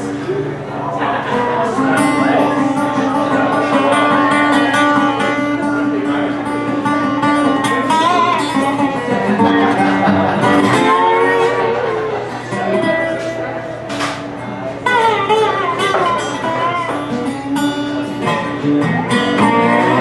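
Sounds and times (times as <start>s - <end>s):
blues resonator guitar: 0.0s - 20.0s.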